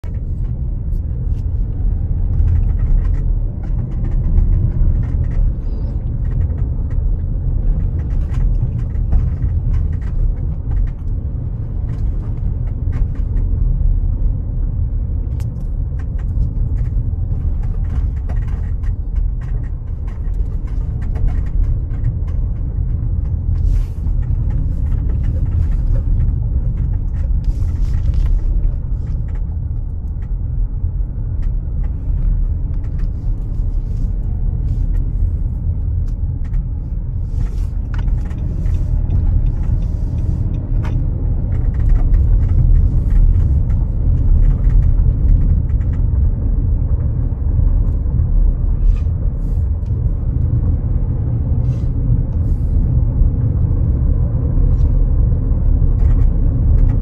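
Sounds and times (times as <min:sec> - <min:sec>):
car engine and road rumble: 0:00.0 - 0:57.0
light clicks and ticks: 0:15.0 - 0:48.3.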